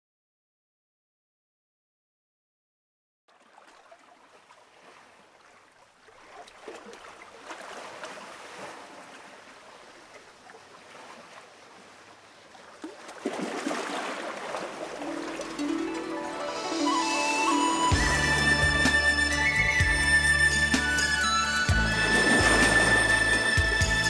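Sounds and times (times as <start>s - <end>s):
flowing water: 3.3s - 24.0s
musical notes: 15.0s - 24.0s.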